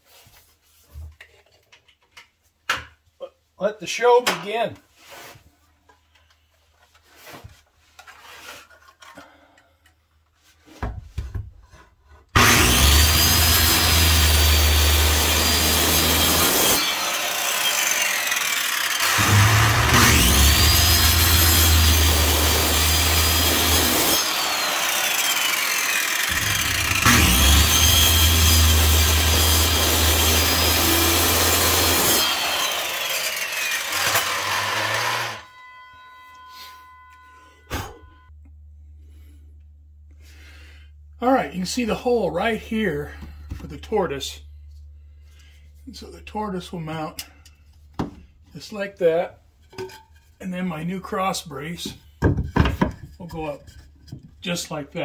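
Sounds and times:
circular saw cutting wood: 0:12.4 - 0:38.1.

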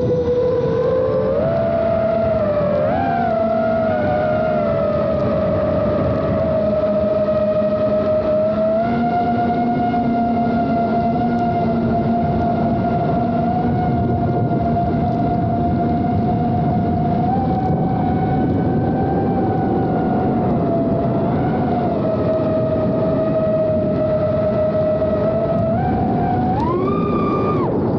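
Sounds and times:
drone motors whining: 0:00.0 - 0:27.9.

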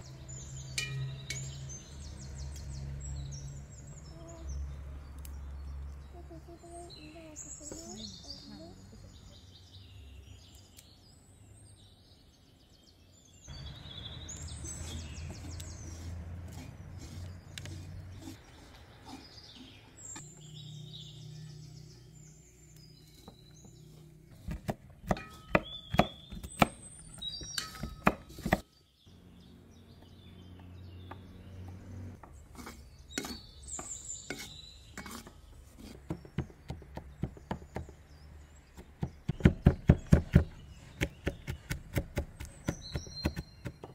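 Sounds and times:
birds chirping: 0:00.0 - 0:43.9
knife chopping on wooden board: 0:24.4 - 0:26.8, 0:27.6 - 0:28.6, 0:38.8 - 0:43.9.

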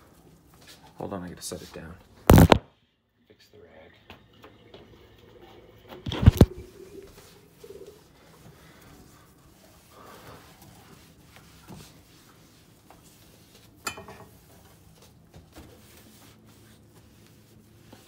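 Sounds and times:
cloth rubbing on stovetop: 0:06.1 - 0:18.0.

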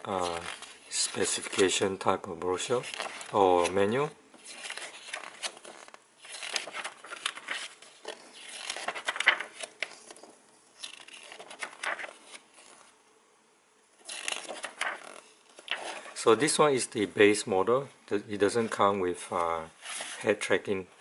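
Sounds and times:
paper pages rustling: 0:00.1 - 0:02.0, 0:02.6 - 0:12.9, 0:14.0 - 0:16.2, 0:18.5 - 0:20.4.

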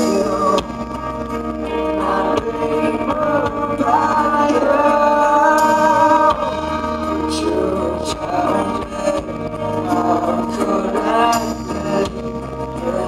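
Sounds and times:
drums: 0:00.0 - 0:13.0
electric guitar: 0:00.0 - 0:13.0
man singing: 0:00.0 - 0:13.0.

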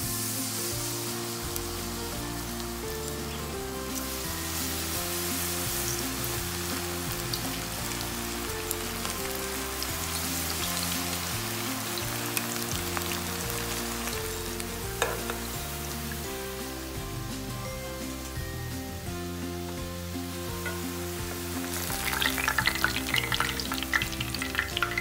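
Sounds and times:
background music: 0:00.0 - 0:25.0
deep-frying sizzle and crackles: 0:00.0 - 0:25.0
metal tongs tapping: 0:15.0 - 0:15.4, 0:20.6 - 0:20.9.

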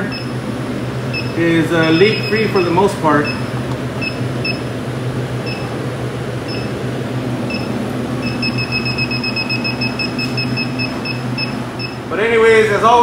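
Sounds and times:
leak detector beeping: 0:00.0 - 0:04.7, 0:05.4 - 0:05.8, 0:06.4 - 0:06.8, 0:07.4 - 0:12.1
steady low hum: 0:00.0 - 0:13.0.

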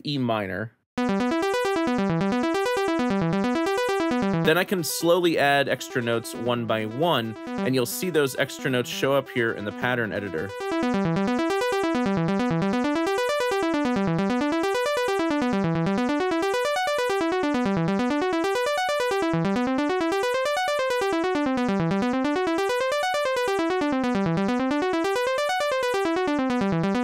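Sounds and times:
synthesizer arpeggio: 0:01.0 - 0:27.0.

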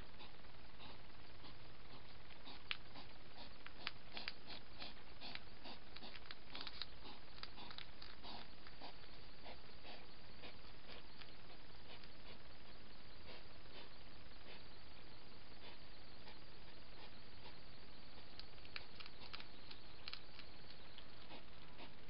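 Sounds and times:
microphone hiss: 0:00.0 - 0:22.0
hedgehog clicks and rustles: 0:00.8 - 0:12.3, 0:18.2 - 0:21.4.

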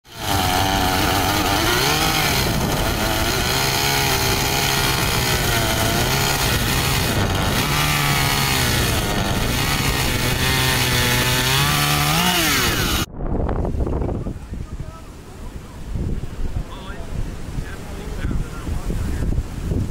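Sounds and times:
chainsaw cutting wood: 0:00.0 - 0:13.1.

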